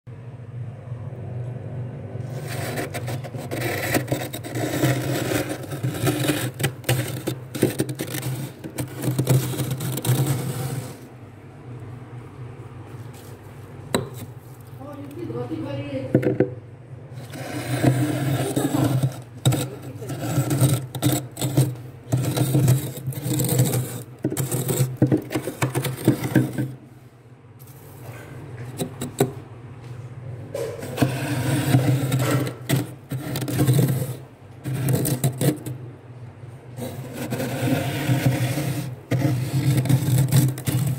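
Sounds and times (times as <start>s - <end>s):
glass cup scraping frost: 2.2s - 11.1s, 17.2s - 26.8s, 30.6s - 35.8s, 36.8s - 40.9s.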